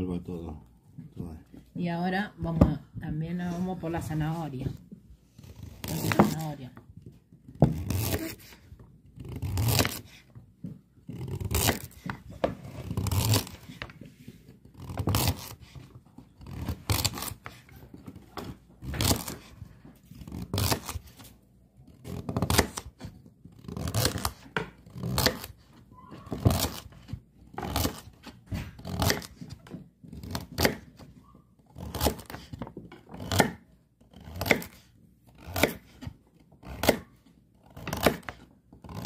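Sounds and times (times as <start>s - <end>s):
knife slicing carrots on board: 5.5s - 6.6s, 7.4s - 10.4s, 11.0s - 21.3s, 22.0s - 39.0s.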